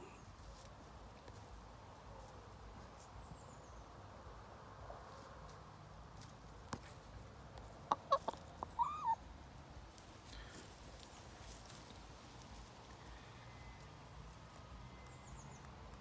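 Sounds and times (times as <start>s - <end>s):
chicken clucking: 7.7s - 9.2s.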